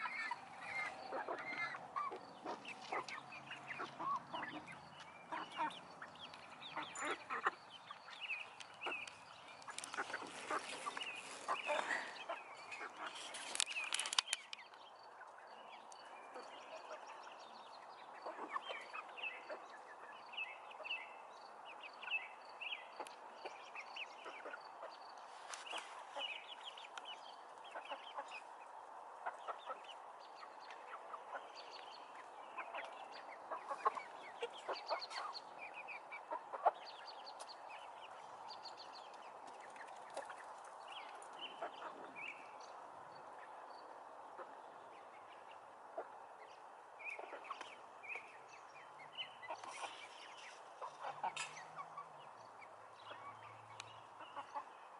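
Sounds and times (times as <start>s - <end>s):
hens clucking: 0.0s - 13.3s, 24.2s - 38.0s, 49.4s - 52.1s, 54.1s - 54.8s
sharp clicks: 13.6s - 14.8s.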